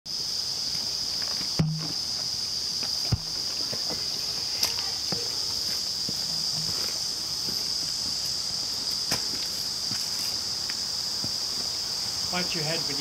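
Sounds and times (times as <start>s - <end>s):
insect chorus: 0.1s - 13.0s
footsteps on rock: 1.2s - 10.4s.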